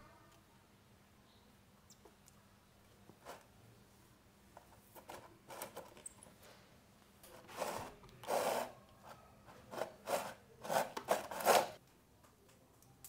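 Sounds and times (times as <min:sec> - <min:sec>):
scraping and rubbing on plastic: 0:07.3 - 0:11.8.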